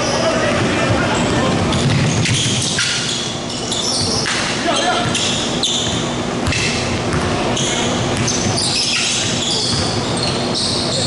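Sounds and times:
sneaker squeaks: 0.0s - 11.0s
basketball dribbling on hardwood: 5.8s - 7.4s.

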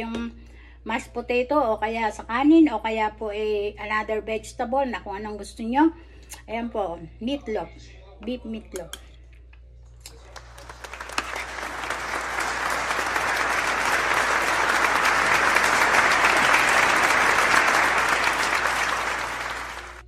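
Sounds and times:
crowd applauding: 10.1s - 20.0s.

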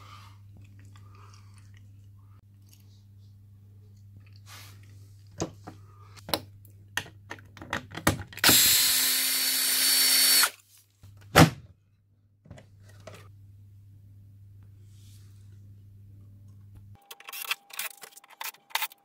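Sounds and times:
cordless drill running: 8.4s - 10.6s.

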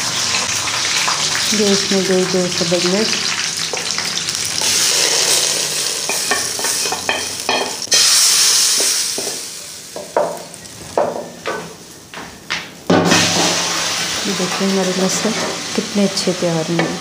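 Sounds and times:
hot oil sizzling: 0.0s - 17.0s
spoon knocking against pot: 10.0s - 10.4s.

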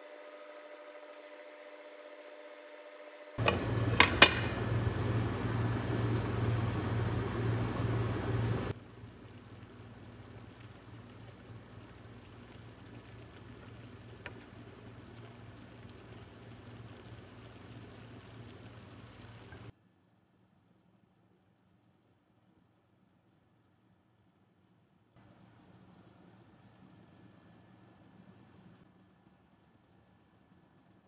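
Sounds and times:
stew bubbling in a pan: 3.4s - 19.7s.

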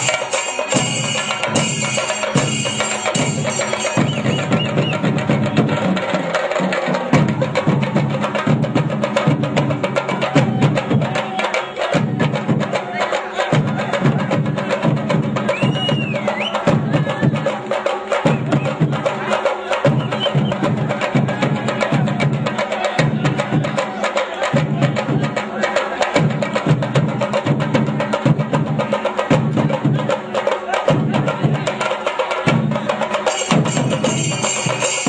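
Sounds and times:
drums pulsing: 0.0s - 35.0s.

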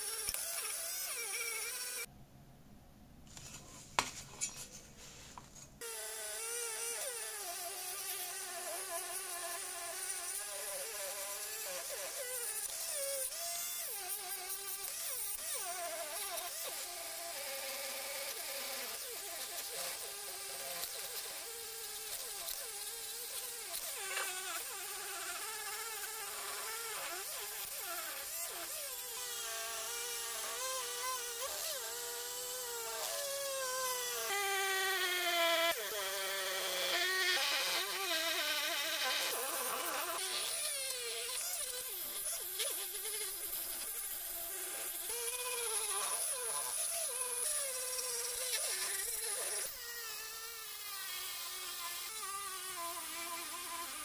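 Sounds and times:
rotary tool buzzing whine: 0.0s - 2.1s, 5.8s - 54.0s.

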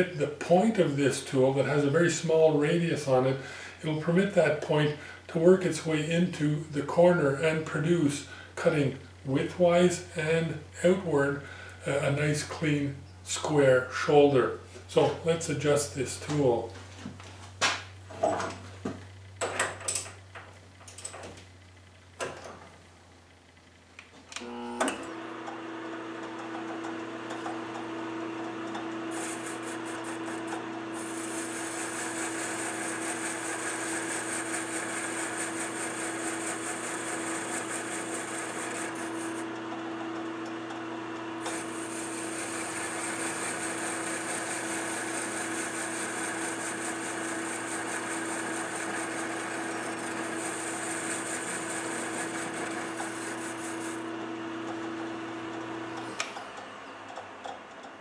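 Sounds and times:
lathe motor humming: 24.4s - 57.9s
high hiss of tool cutting metal: 29.1s - 39.4s, 41.4s - 54.0s.

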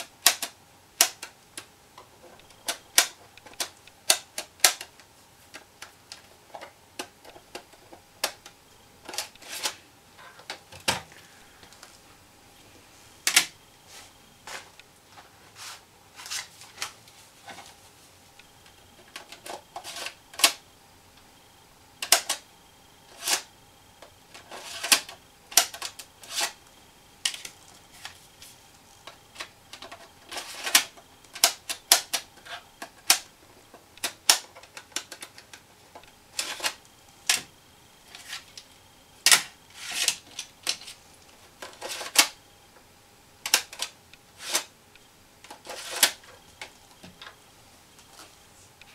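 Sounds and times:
plastic clicks and clacks: 34.0s - 37.5s, 43.4s - 44.7s.

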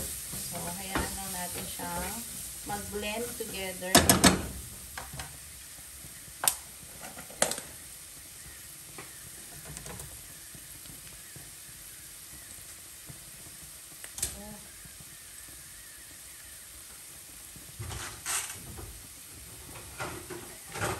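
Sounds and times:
vegetables sizzling in oil: 0.0s - 20.9s.

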